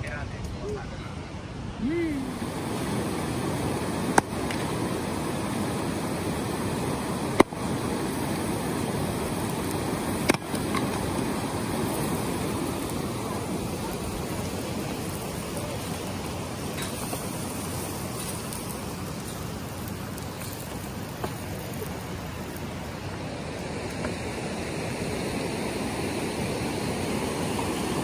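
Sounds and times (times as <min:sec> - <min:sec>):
river rapids rushing: 0:01.7 - 0:16.9
axe striking firewood: 0:10.2 - 0:10.8.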